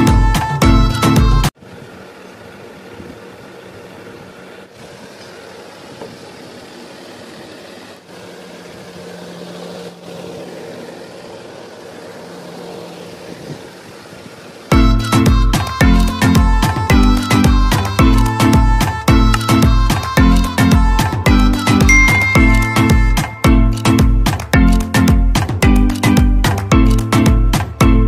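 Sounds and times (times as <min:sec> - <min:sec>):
small electric motors whirring: 0:02.8 - 0:21.9.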